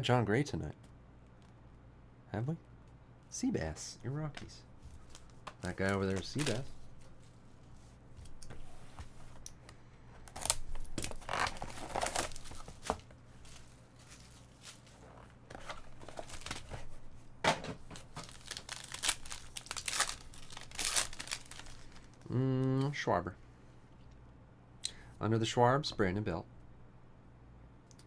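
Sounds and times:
foil pack tearing and crinkling: 10.3 - 13.0, 15.7 - 16.8, 18.0 - 22.2
box wrapping rustling and tearing: 10.3 - 17.0, 18.0 - 22.1.

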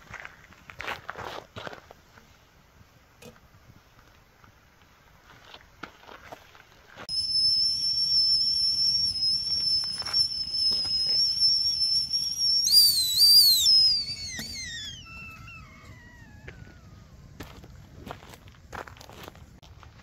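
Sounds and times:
kettle whistling: 7.1 - 17.4.

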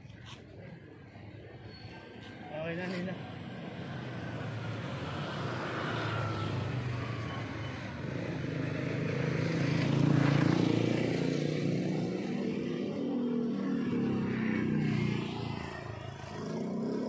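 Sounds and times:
vehicle engine passing by: 4.4 - 17.0.

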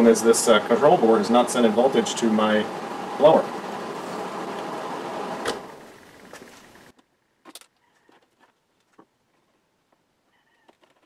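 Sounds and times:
blower fan running: 0.0 - 6.9.

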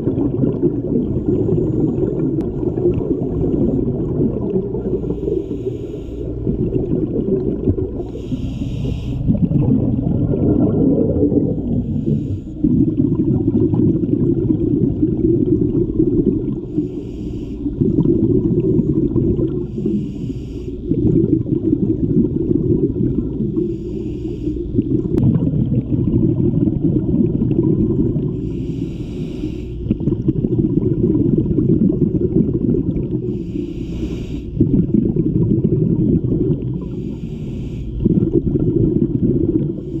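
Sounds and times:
exhaled bubbles gushing: 0.0 - 17.0, 17.6 - 28.8, 29.7 - 33.8, 34.5 - 37.2, 37.9 - 40.0
regulator inhalation hiss: 4.9 - 6.4, 8.0 - 9.3, 11.8 - 12.6, 16.7 - 17.7, 19.7 - 20.8, 23.6 - 24.6, 28.3 - 29.8, 33.3 - 34.6, 36.8 - 38.0.

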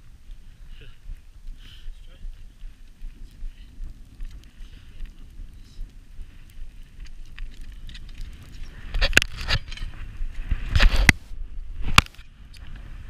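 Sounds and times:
wind rumble on microphone: 0.0 - 13.0
sharp clicks and scrapes: 6.4 - 11.2, 11.8 - 12.9.

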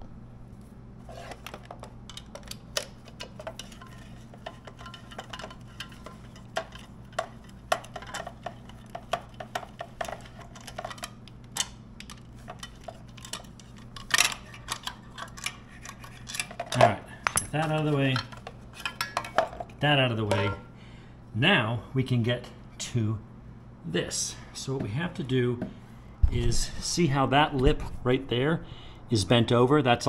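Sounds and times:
metal tools clinking: 1.2 - 20.7.

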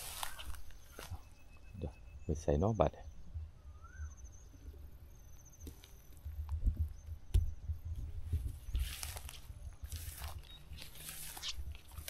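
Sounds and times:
footsteps through tall grass: 0.0 - 1.5, 8.0 - 12.0
sharp crunches: 8.8 - 12.0.

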